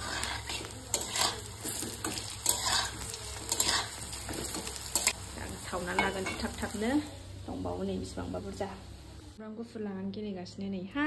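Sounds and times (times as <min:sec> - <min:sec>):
utensil stirring and scraping: 0:00.0 - 0:05.2
food sizzling in a pan: 0:00.0 - 0:09.4.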